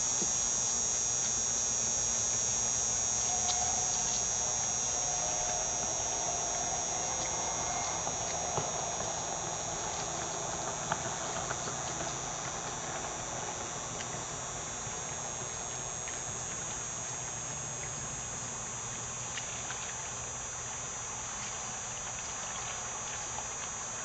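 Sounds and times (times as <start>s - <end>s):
high-pitched hiss: 0.0s - 19.2s
distant watercraft engine drone: 0.0s - 24.0s.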